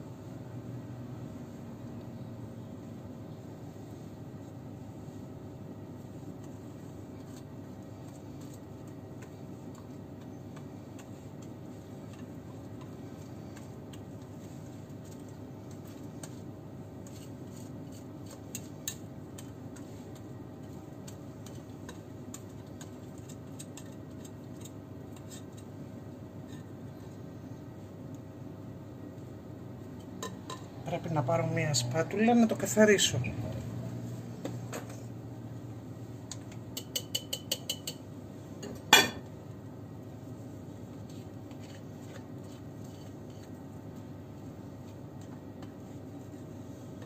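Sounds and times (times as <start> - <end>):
whisk tapping mixing bowl: 6.3 - 25.7, 36.3 - 38.0.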